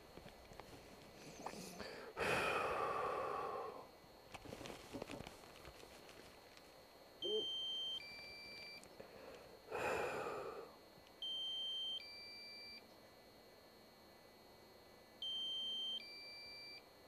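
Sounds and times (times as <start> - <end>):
electronic warning beeps: 7.2 - 8.9, 11.2 - 12.8, 15.2 - 16.8.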